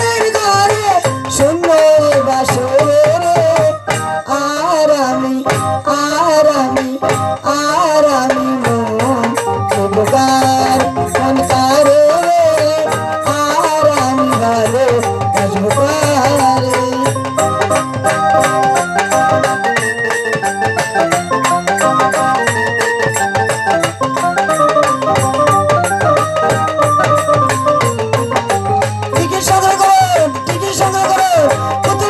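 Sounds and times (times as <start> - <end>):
woman singing through microphone: 0.0 - 17.8, 29.1 - 32.0
dhol drum beats: 0.0 - 32.0
held keyboard tones: 8.2 - 32.0.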